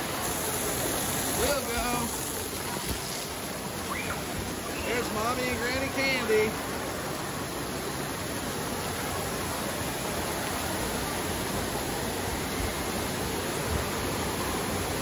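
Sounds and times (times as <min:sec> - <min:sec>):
running and splashing water: 0:00.0 - 0:15.0.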